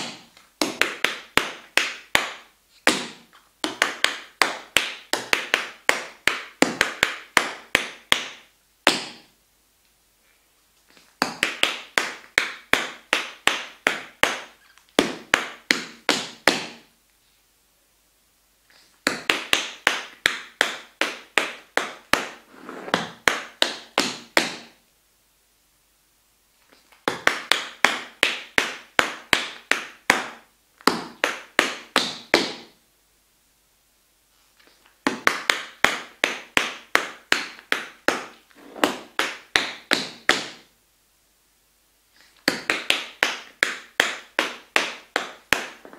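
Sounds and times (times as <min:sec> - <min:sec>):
tap shoes on wooden floor: 0:00.0 - 0:09.3, 0:10.9 - 0:16.9, 0:19.0 - 0:24.8, 0:26.7 - 0:32.8, 0:34.6 - 0:40.7, 0:42.3 - 0:45.9.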